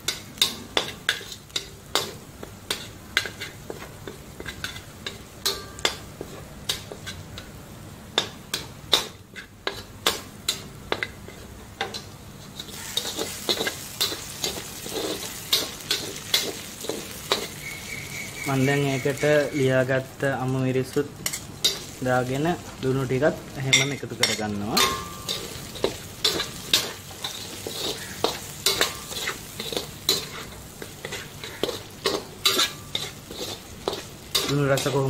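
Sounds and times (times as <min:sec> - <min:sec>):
garlic sizzling in oil: 0:00.0 - 0:35.0
metal spatula scraping a wok: 0:09.1 - 0:19.8, 0:23.8 - 0:35.0.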